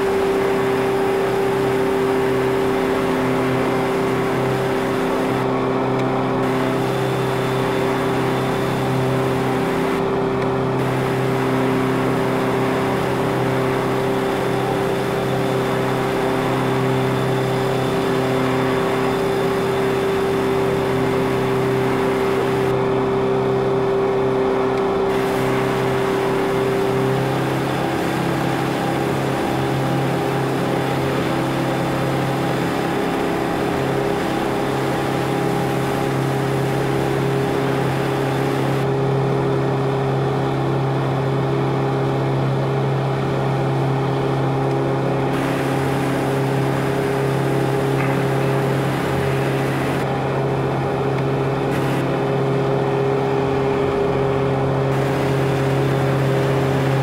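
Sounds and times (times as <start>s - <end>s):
boat engine droning: 0.0s - 40.2s, 42.2s - 57.0s.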